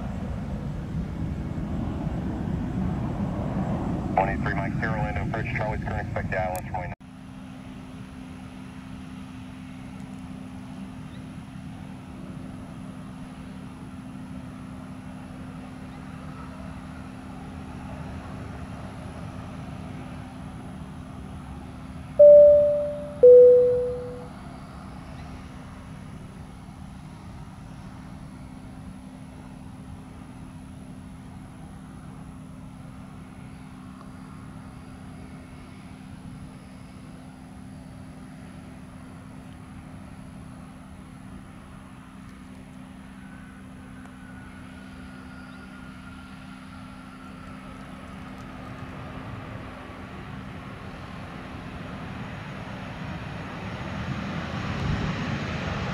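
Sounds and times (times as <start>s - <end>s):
jet engines whining down: 0.0s - 6.9s
distant jet landing rumble: 0.0s - 7.0s
low steady hum: 22.2s - 24.3s
two-note chime: 22.2s - 24.3s.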